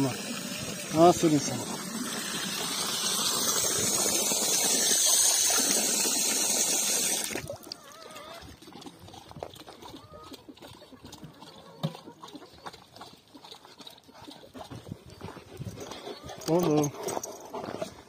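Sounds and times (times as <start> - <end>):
water running in a hissing rush: 0.0 - 7.5.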